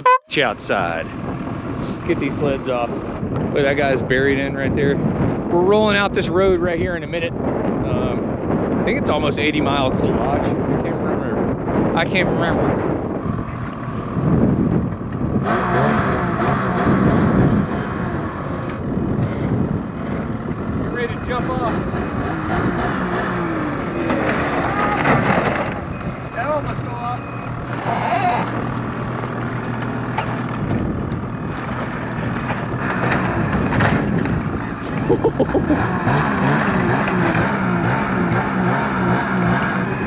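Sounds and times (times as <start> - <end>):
wind on microphone: 0.0 - 26.8, 27.5 - 40.0
snowmobile engine revving: 35.2 - 40.0.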